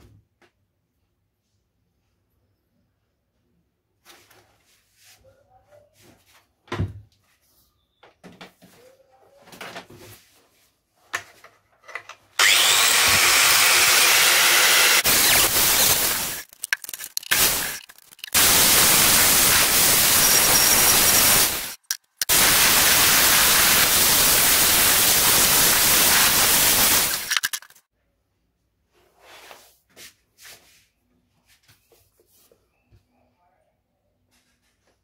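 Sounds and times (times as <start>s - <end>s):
angle grinder grinding: 12.4s - 27.8s.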